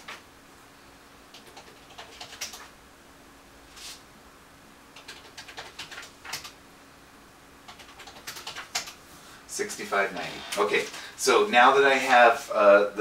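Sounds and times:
calculator keys clicking: 5.0 - 6.6, 7.7 - 9.0.

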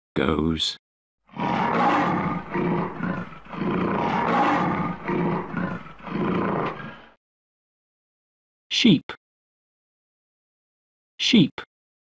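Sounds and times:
lion roaring: 1.3 - 7.2.

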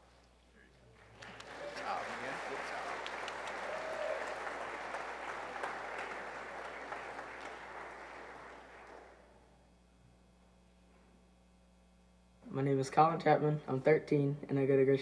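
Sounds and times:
congregation applauding: 1.0 - 9.3.

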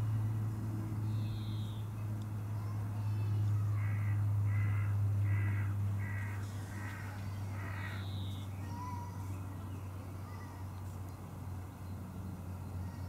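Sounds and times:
steady low hum: 0.0 - 13.0
harsh animal calls: 3.7 - 9.0.

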